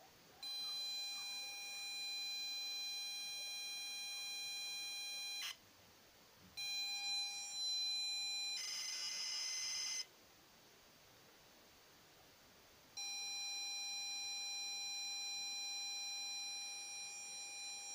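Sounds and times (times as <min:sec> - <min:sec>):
buzzing data signal: 0:06.6 - 0:10.1.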